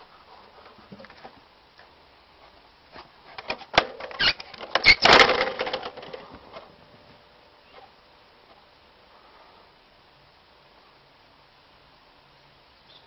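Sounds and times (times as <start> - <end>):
wooden contraption clattering: 3.3 - 6.7.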